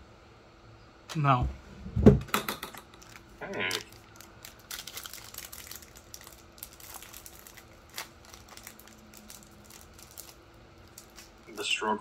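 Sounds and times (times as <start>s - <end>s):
foil wrapper crinkling: 3.0s - 11.8s.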